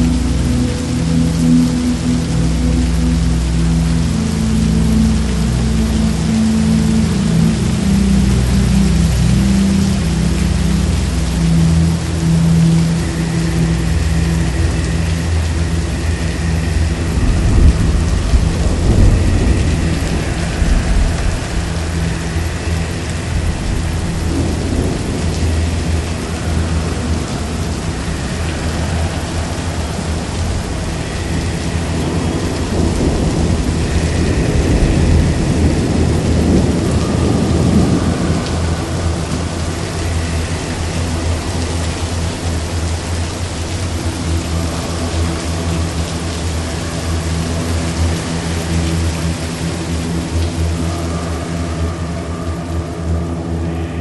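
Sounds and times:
heavy rain: 0.0 - 54.0
rolling thunder: 17.0 - 21.8, 30.3 - 39.8.

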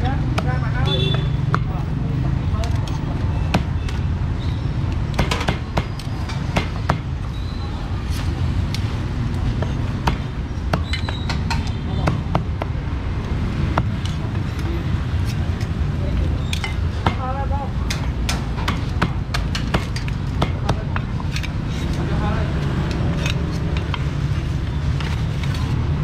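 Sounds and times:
background chatter: 0.0 - 4.4, 11.1 - 26.0
sharp knocks and clicks: 4.9 - 7.1, 16.5 - 21.6.

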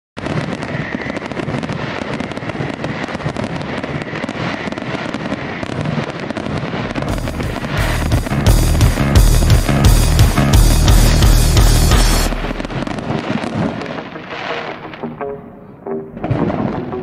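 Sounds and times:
fireworks crackling and popping: 0.2 - 15.2, 16.1 - 17.0
bass-heavy music: 6.9 - 13.1.

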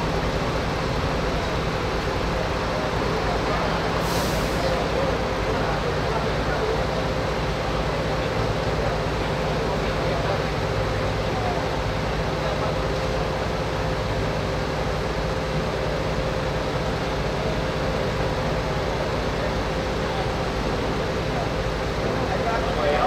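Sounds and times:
large engine humming: 0.0 - 23.0
faint voices: 16.9 - 23.0.

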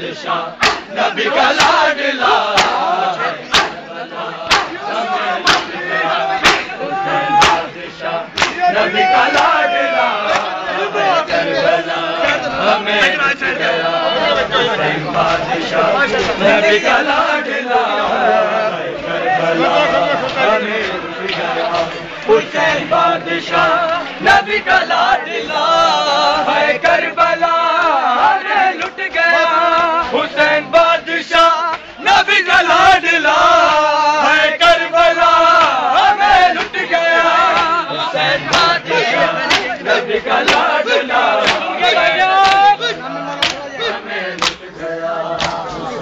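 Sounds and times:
crowd of men chanting: 0.0 - 46.0.

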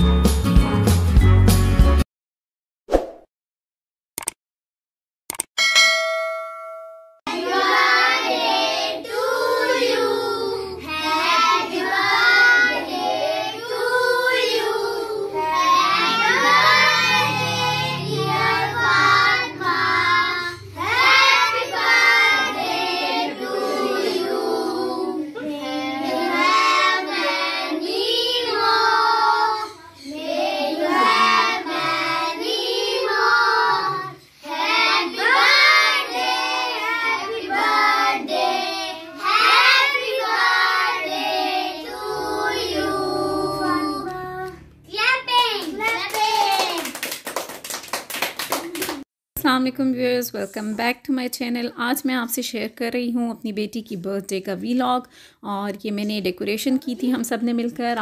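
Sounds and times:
children singing: 7.3 - 44.6.

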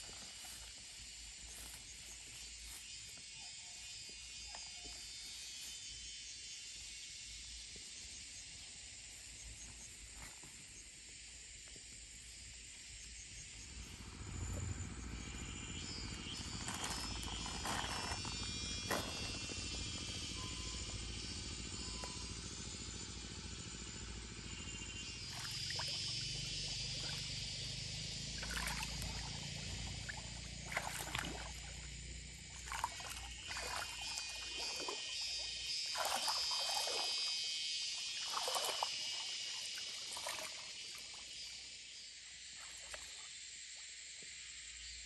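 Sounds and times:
hands splashing in stream water: 28.4 - 29.4, 30.0 - 31.8, 32.5 - 35.0, 35.9 - 37.3, 38.1 - 40.7.

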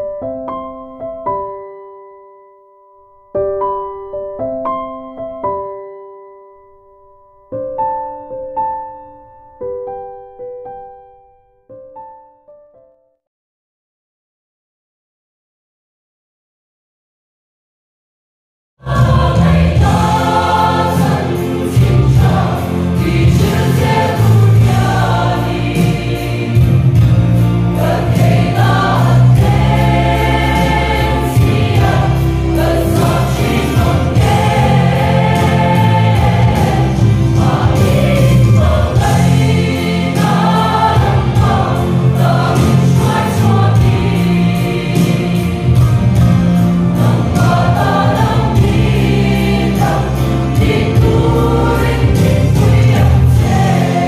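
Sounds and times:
church choir singing: 18.8 - 54.0.

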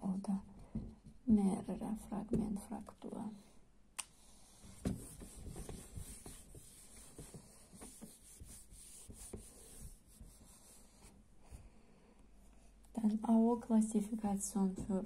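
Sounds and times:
eraser rubbing on whiteboard: 4.4 - 11.1.

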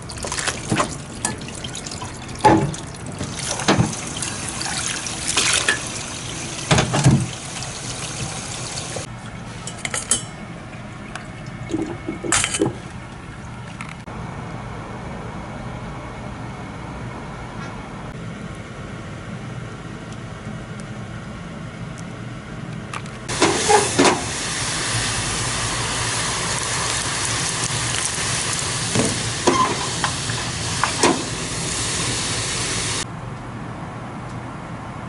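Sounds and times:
hot oil sizzling and crackling: 3.2 - 9.1, 23.3 - 33.0.

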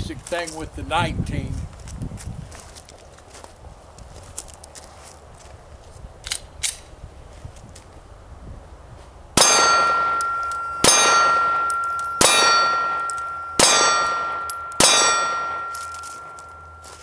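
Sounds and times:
pistol shots: 9.4 - 16.8
steel plate ringing: 9.4 - 17.0.

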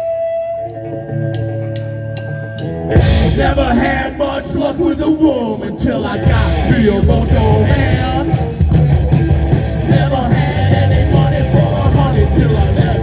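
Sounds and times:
electric guitar: 0.0 - 13.0
drum kit: 1.3 - 13.0
vocals: 3.0 - 13.0.

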